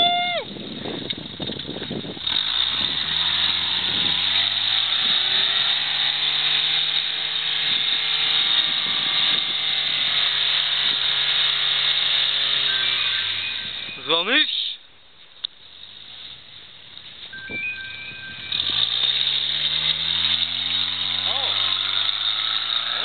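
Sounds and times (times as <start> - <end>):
car engine revving: 2.2 - 14.0, 17.5 - 23.0.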